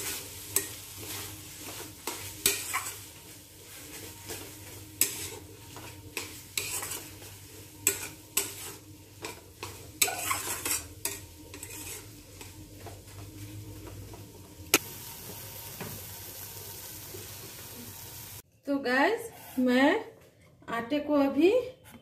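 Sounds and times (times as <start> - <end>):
spatula scraping metal pan: 0.0 - 12.6
food sizzling: 0.0 - 18.4.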